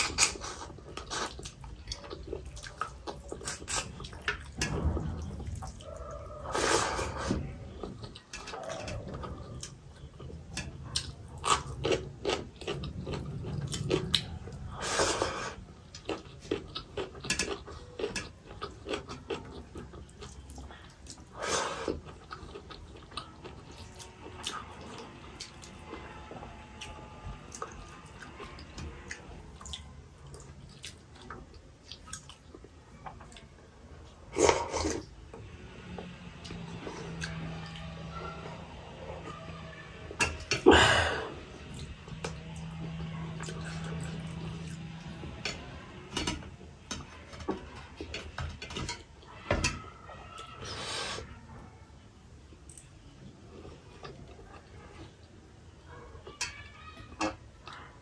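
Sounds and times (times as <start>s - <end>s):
wet chewing: 0.0s - 35.2s
sucking sounds: 5.8s - 7.6s.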